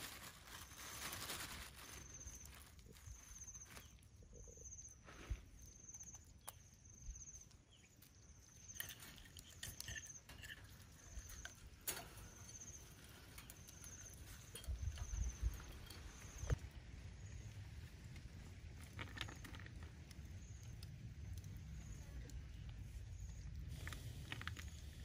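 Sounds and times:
faint high chirp: 0.5 - 16.6
shells clicking on wire grill: 8.6 - 16.5.

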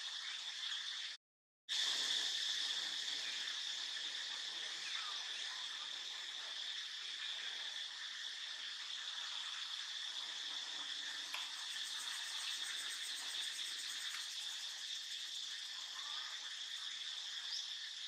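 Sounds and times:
insects buzzing: 1.8 - 18.0
faint ticks: 11.2 - 14.6.

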